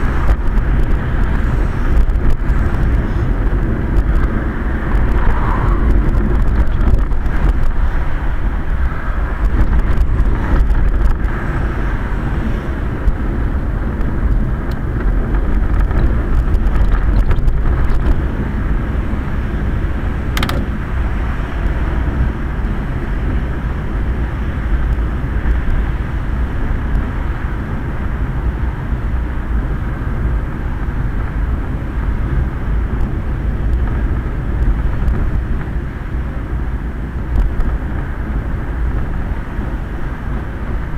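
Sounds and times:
rumbling road and wind noise: 0.0 - 40.9
sharp click: 20.4 - 20.7.

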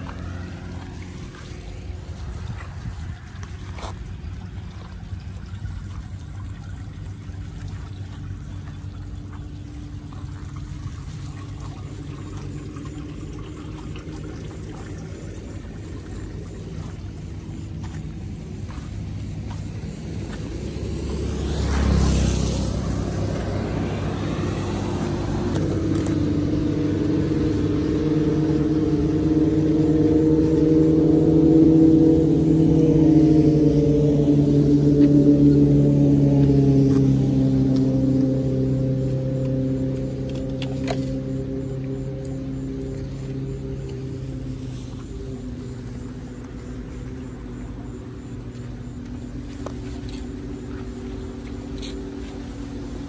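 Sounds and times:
low engine hum: 0.0 - 53.0
steady engine drone: 0.0 - 53.0
car tyres hissing on wet road: 18.2 - 27.7.

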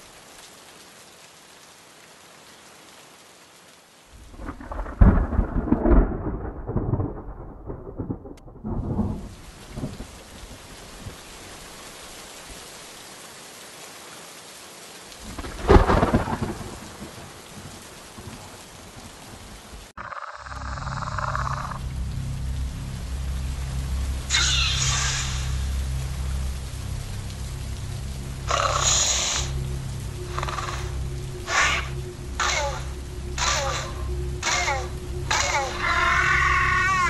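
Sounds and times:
steady rain: 0.0 - 37.0
thunder rolling: 4.2 - 10.2, 15.2 - 18.3, 20.8 - 37.0.

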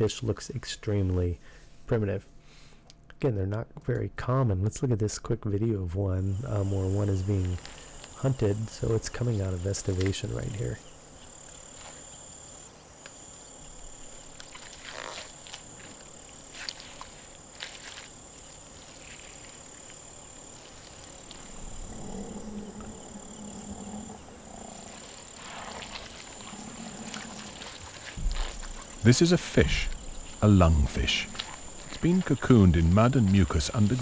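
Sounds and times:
crickets and insects trilling: 6.0 - 34.0
short low animal calls: 21.3 - 28.9.

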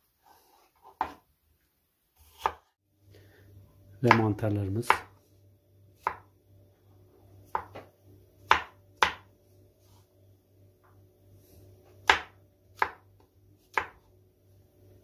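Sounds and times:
knife striking cutting board: 6.0 - 6.3, 8.5 - 9.3.

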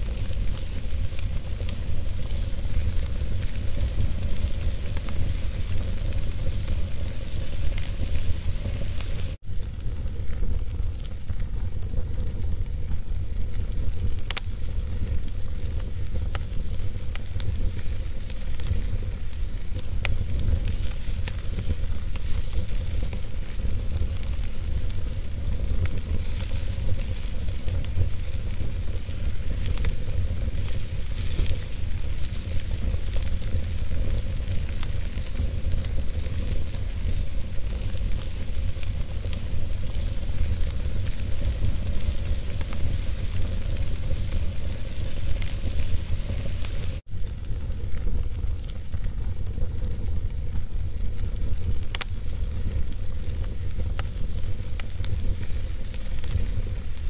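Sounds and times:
burning logs crackling: 0.0 - 57.0
flames rumbling and hissing: 0.0 - 57.0.

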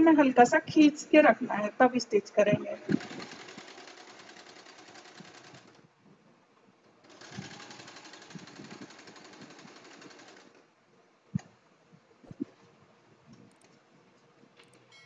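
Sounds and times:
sewing machine stitching: 2.8 - 5.8, 7.0 - 10.6.

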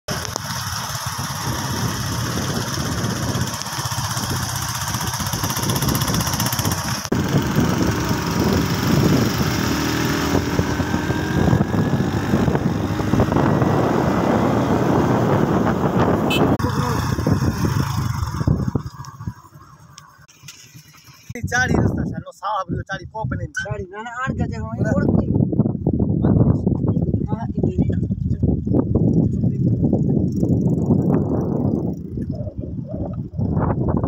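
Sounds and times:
small motorcycle engine running: 0.1 - 21.4, 28.4 - 34.0.

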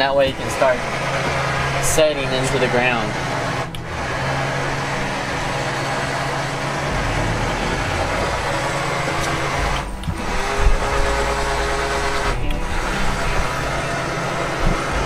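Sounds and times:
boat engine idling: 0.0 - 15.0
deep low rumble: 3.9 - 15.0.

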